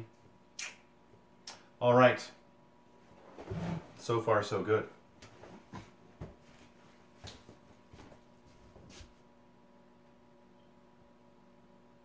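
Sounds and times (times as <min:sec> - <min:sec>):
faint steady hum: 0:00.0 - 0:12.0
faint footsteps: 0:05.2 - 0:09.2.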